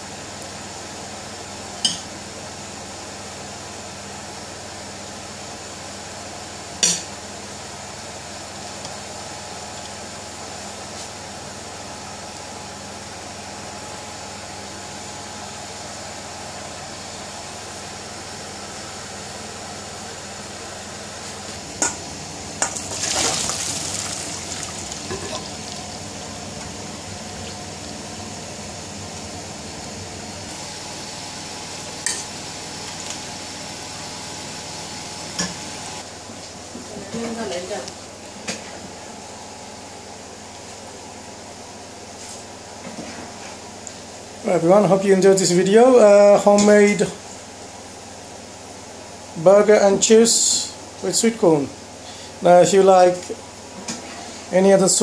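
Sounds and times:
steady kitchen hiss: 0.0 - 55.0
water poured through colander: 22.8 - 26.0.

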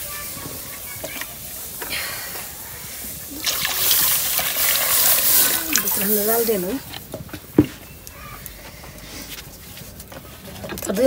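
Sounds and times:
water pouring and splashing: 0.0 - 7.2.

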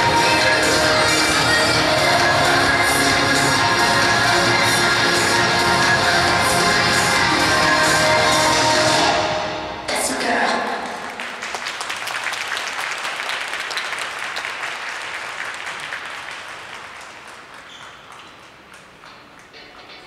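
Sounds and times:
audience applauding: 11.0 - 20.0.

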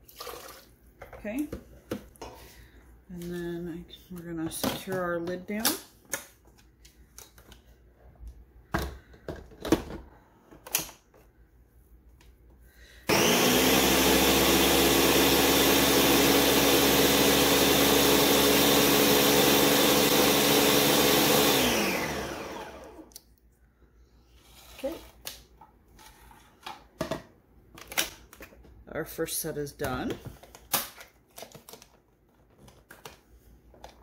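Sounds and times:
blender motor running: 13.1 - 23.1.

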